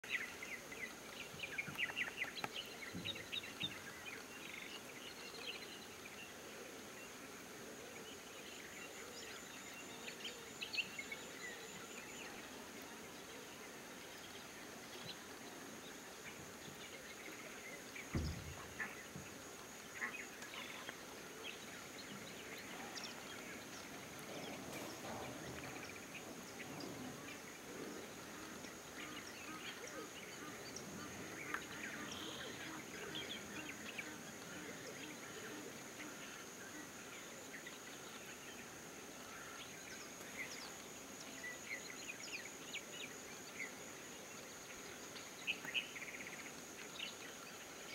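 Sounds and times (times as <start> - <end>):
birds chirping: 0.0 - 47.9
low thump: 18.1 - 18.8.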